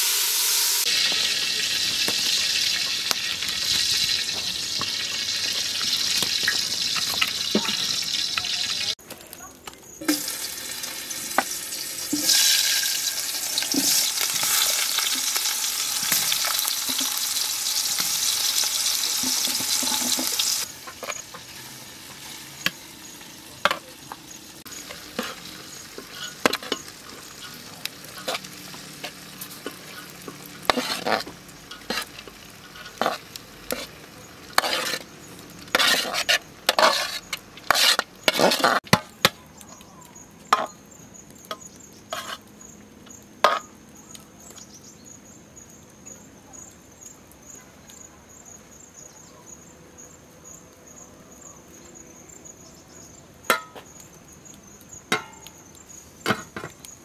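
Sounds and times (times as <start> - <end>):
loud steady hiss: 0.0 - 9.0, 10.0 - 35.8
clicks and scrapes of pots: 2.0 - 8.9, 17.9 - 22.8, 23.6 - 39.4, 40.5 - 40.8, 41.4 - 42.5, 43.4 - 43.8, 55.1 - 55.6, 56.2 - 56.9.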